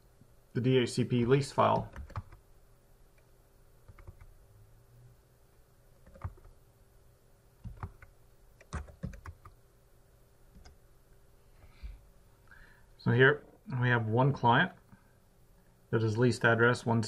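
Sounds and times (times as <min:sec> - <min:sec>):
computer keyboard typing: 0:01.6 - 0:02.4, 0:03.8 - 0:04.3, 0:06.0 - 0:06.6, 0:07.6 - 0:09.6, 0:10.6 - 0:10.8.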